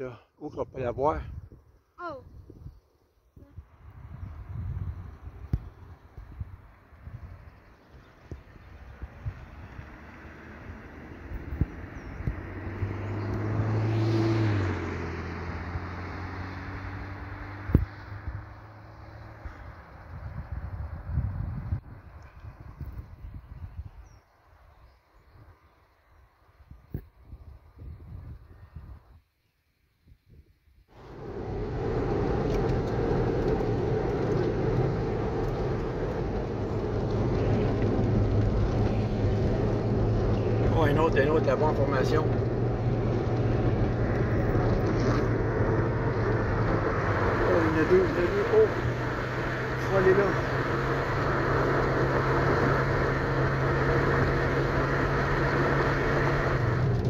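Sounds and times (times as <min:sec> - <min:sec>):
car road and engine drone: 0:00.5 - 0:29.1, 0:30.9 - 0:57.0
tyre and wind rush: 0:30.9 - 0:57.0.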